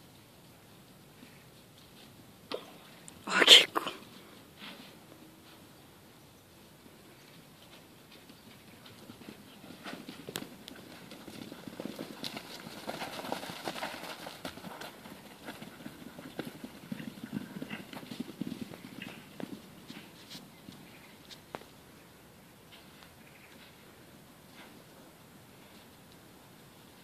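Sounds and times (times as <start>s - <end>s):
horses galloping on turf: 6.6s - 21.9s.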